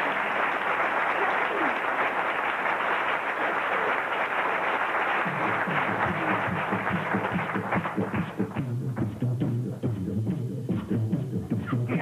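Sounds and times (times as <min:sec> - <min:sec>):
audience applauding: 0:00.0 - 0:08.8
music with a beat: 0:05.3 - 0:12.0.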